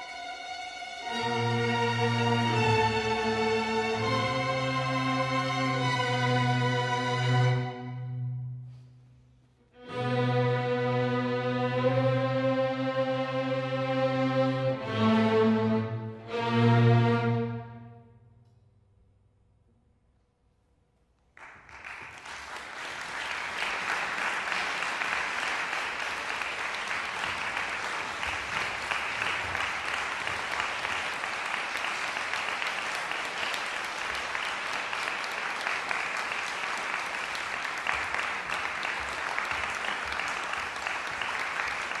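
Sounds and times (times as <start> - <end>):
audience applauding: 21.4 - 42.0.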